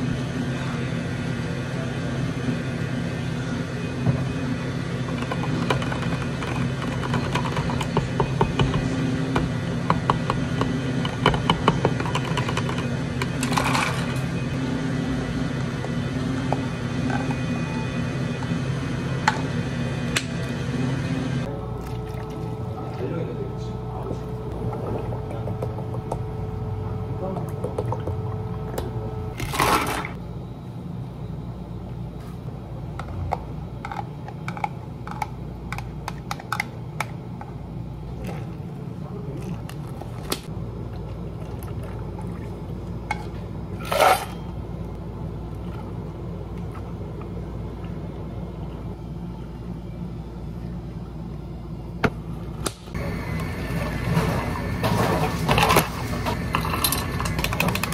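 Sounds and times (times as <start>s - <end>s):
steady low hum: 0.0s - 57.9s
drink pouring: 21.8s - 22.6s.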